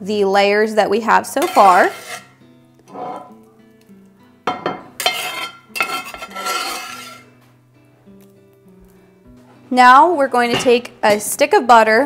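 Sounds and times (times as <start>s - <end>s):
soft background music: 0.0s - 12.0s
metal spatula scraping skillet: 1.2s - 3.4s, 4.9s - 7.4s.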